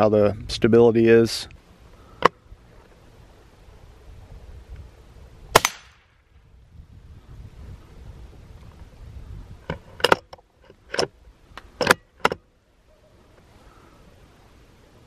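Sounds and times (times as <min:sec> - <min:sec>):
rifle bolt clacking: 0:10.0 - 0:11.1, 0:11.8 - 0:12.4.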